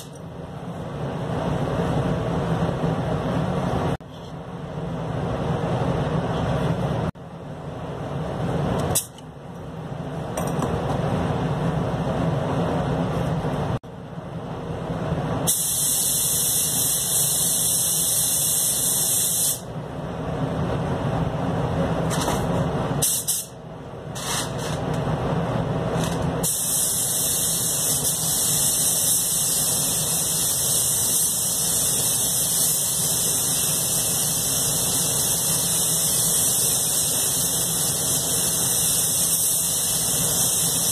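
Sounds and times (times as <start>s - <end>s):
spray gun hissing: 15.5s - 19.6s, 26.4s - 40.9s.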